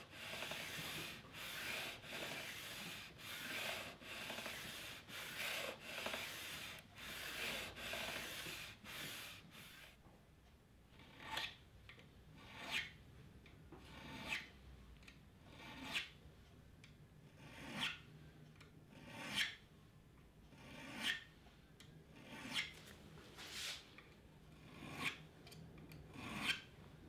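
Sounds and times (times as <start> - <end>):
metal file rasping on frets: 0.0 - 10.0.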